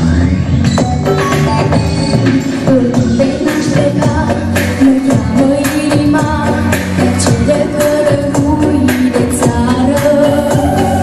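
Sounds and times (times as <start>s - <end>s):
pop backing track with beat: 0.0s - 11.0s
girl singing into a microphone: 2.6s - 11.0s.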